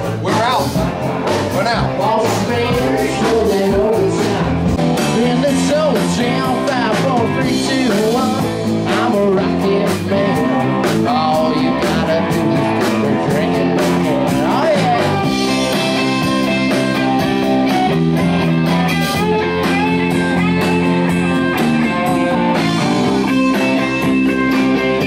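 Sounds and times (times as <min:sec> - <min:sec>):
blues-rock band playing: 0:00.0 - 0:25.0
electric guitar: 0:00.0 - 0:25.0
person singing: 0:01.5 - 0:16.0.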